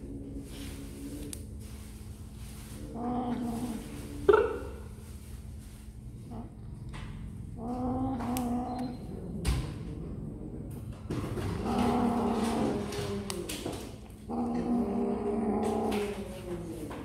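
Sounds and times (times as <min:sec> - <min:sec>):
cat growling: 0:02.8 - 0:04.4, 0:06.2 - 0:17.0.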